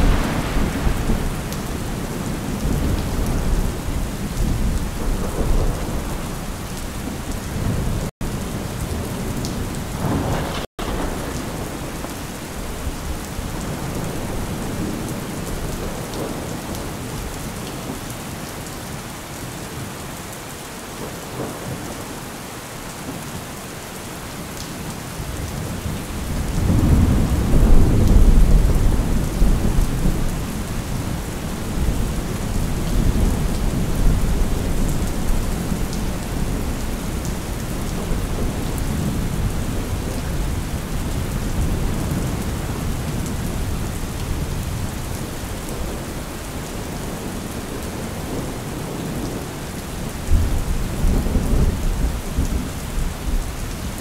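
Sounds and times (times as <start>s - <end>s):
rolling thunder: 0.0s - 17.4s, 25.4s - 46.2s
steady rain: 0.0s - 54.0s.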